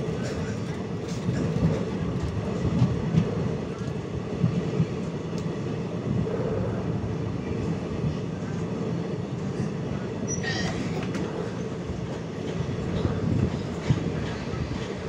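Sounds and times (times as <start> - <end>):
train wheels on rails: 0.0 - 15.0
high wheel squeal: 10.3 - 11.0.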